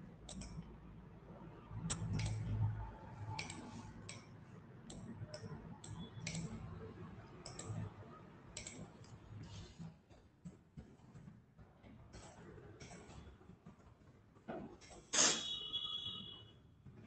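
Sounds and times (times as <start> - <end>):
computer mouse clicks: 0.3 - 0.7, 1.8 - 2.7, 3.3 - 9.2.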